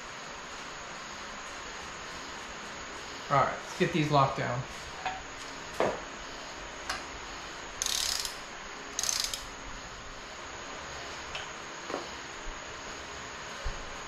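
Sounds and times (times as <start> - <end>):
ratchet wrench ratcheting: 7.8 - 8.4, 9.0 - 9.5.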